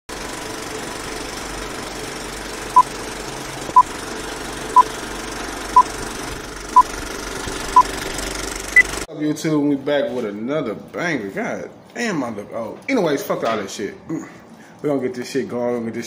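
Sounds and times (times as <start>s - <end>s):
film projector rattle: 0.1s - 9.1s.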